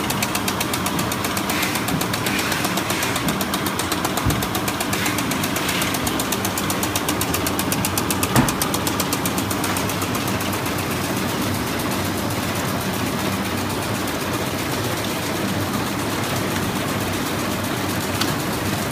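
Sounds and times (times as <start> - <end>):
machine knock: 0.0 - 10.0
wrapping machine clatter: 0.0 - 11.2.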